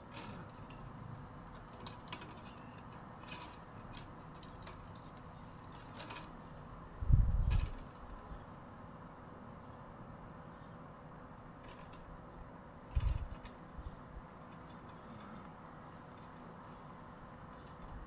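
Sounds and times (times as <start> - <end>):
bamboo strips clicking and rustling: 0.0 - 6.7, 7.4 - 8.3, 11.6 - 12.2, 12.8 - 18.0.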